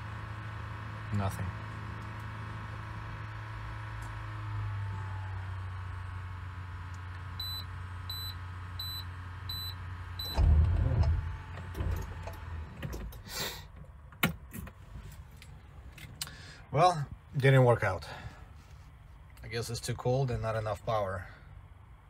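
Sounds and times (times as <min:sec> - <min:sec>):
dashboard warning chime beeps: 0:07.4 - 0:10.5
starter clunk and rumble: 0:08.8 - 0:15.3.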